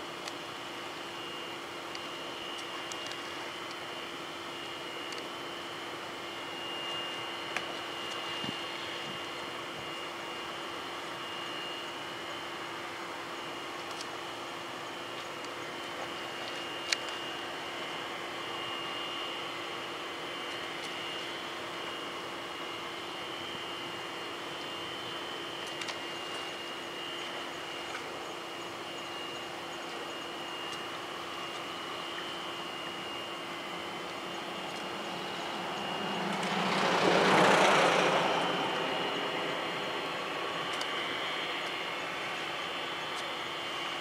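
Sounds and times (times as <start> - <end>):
distant jet whine: 0.0 - 44.0
rush of jet noise: 32.4 - 43.5.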